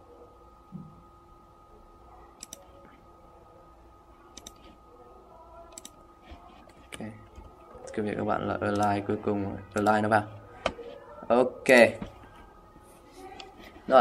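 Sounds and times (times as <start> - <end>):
faint electrical hum: 0.0 - 14.0
computer mouse clicking: 2.4 - 2.7, 4.3 - 4.8, 5.7 - 8.0, 8.7 - 9.0, 9.7 - 10.0.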